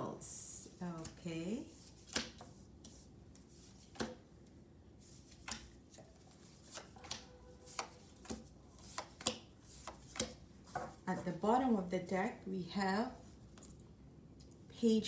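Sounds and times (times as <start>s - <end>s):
cards snapping and tapping on table: 2.0s - 2.5s, 3.8s - 4.2s, 5.3s - 6.1s, 6.7s - 10.9s.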